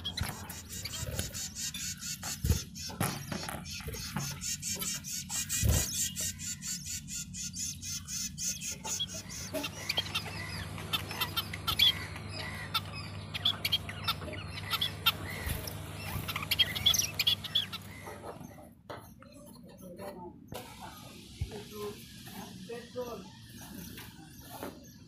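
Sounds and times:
steady low hum: 0.0s - 19.4s
chicks cheeping: 0.0s - 25.0s.

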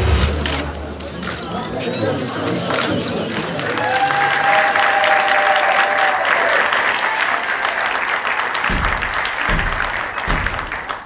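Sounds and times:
audience applauding: 0.0s - 11.0s
person cheering: 3.8s - 7.6s.

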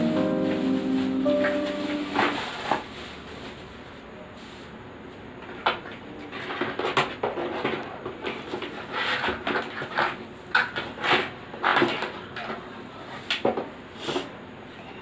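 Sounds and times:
packaging rustling and crinkling: 0.0s - 4.7s.

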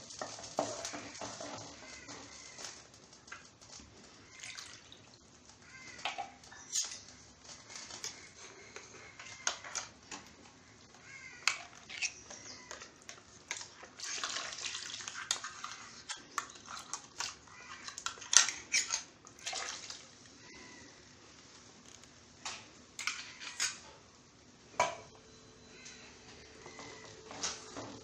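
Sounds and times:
water pouring into a clay pot: 4.2s - 5.2s, 14.0s - 16.9s.

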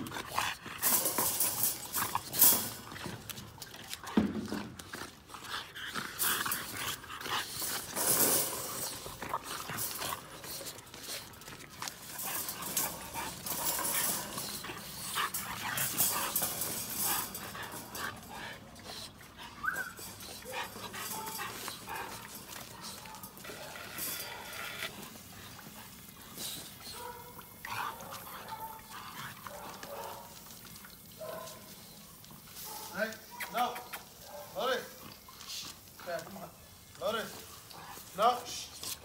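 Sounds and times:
puppies scuffling with clicks: 0.0s - 39.0s
puppy whimpering: 19.6s - 20.0s.

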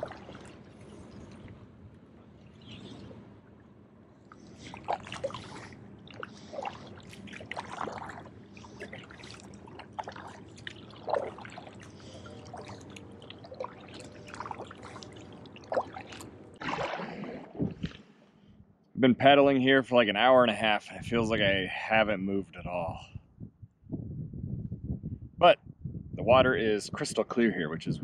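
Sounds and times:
paddle splashing in water: 0.0s - 1.6s, 4.3s - 18.2s
water dripping off paddle: 4.3s - 17.1s.

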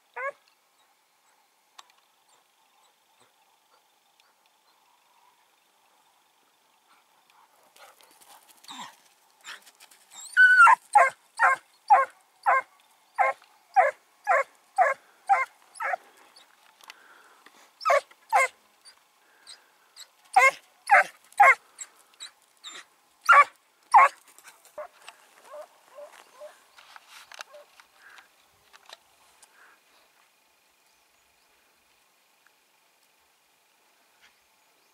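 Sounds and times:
dog barking: 10.6s - 16.0s, 17.9s - 18.5s, 20.4s - 21.6s, 23.3s - 24.2s.

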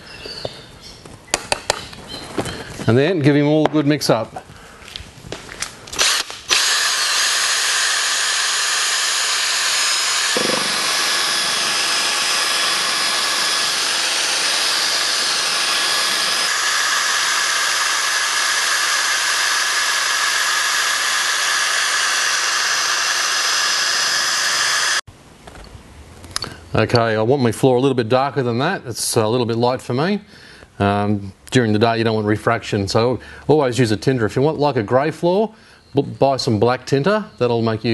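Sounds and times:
cordless drill mixing in bucket: 6.0s - 25.0s.

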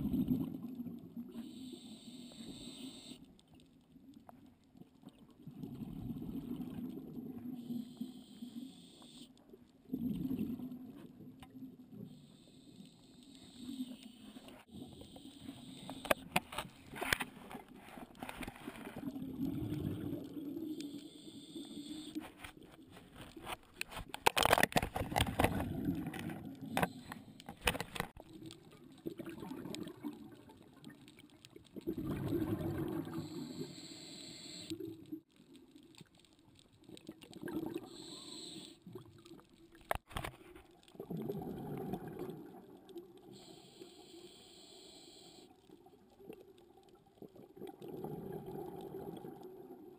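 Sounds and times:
gurgling exhaled bubbles: 0.0s - 1.2s, 5.4s - 7.5s, 9.9s - 11.0s, 18.9s - 20.7s, 25.2s - 26.9s, 28.2s - 30.9s, 31.7s - 33.4s, 37.1s - 38.0s, 40.9s - 42.9s, 47.2s - 49.9s
hissing regulator inhalations: 1.3s - 3.2s, 20.7s - 22.4s, 33.1s - 34.8s, 37.8s - 38.8s, 43.3s - 45.5s.

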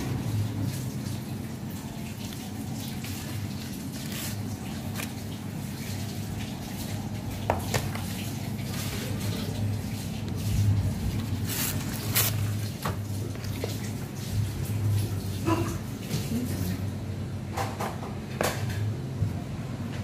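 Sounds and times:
rice paper crackling: 0.7s - 14.6s.

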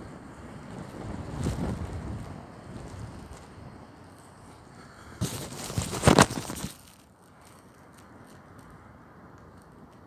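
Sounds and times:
wind on microphone: 0.6s - 3.8s
skirt rustling against phone: 5.2s - 7.8s.

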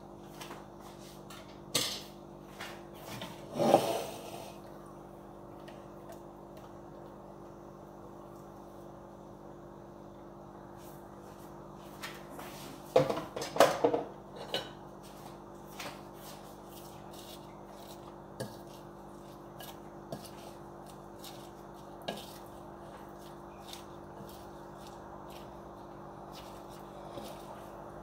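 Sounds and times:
kitchenware clatter: 1.7s - 2.1s, 13.0s - 14.8s
wooden spoon tossing salad: 16.3s - 28.0s.

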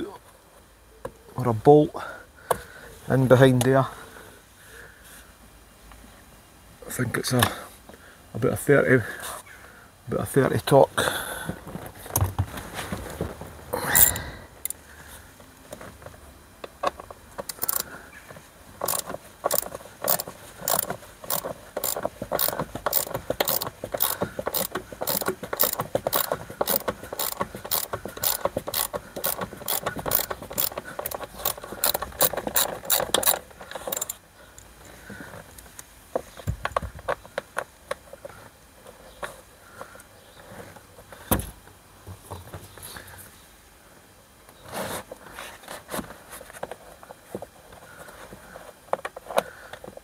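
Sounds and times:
ratchet screwdriver clicking: 17.5s - 17.8s, 18.8s - 34.2s.

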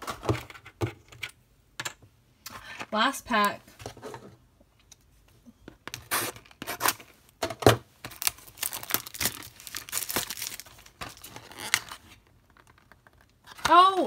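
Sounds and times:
plastic wrap crinkling and tearing: 8.0s - 13.3s.

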